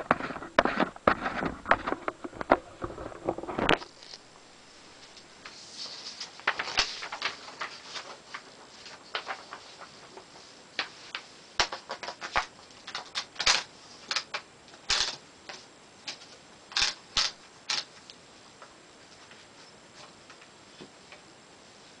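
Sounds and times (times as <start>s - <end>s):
typewriter mechanical clicks: 11.6s - 15.2s, 16.7s - 17.9s.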